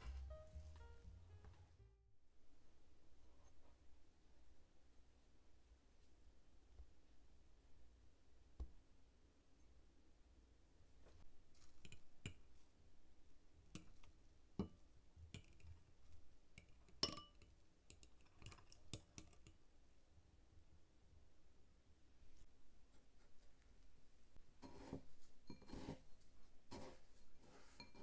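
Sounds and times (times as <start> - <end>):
fork clinking on ceramic bowl: 16.6 - 19.5.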